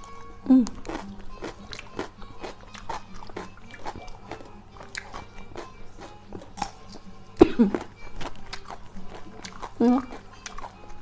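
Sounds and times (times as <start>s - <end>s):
crunching raw vegetables: 0.0s - 6.9s.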